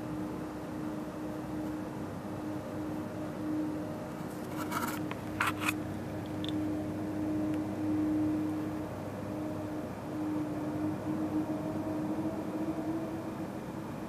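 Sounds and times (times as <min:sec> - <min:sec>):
steady low hum: 0:00.0 - 0:14.0
camera handling clicks and rustles: 0:04.4 - 0:05.8.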